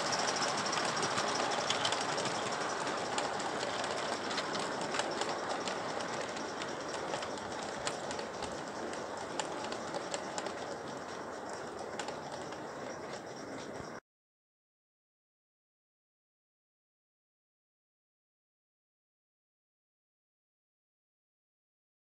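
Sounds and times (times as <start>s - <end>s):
sharp rail clicks: 0.0s - 13.8s
model train wheels rolling on rail: 0.0s - 14.0s.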